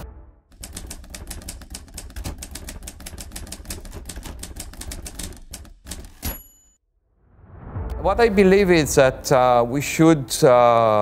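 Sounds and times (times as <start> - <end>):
typewriter keystroke clacks: 0.5 - 6.4
typewriter bell ring: 5.1 - 6.8.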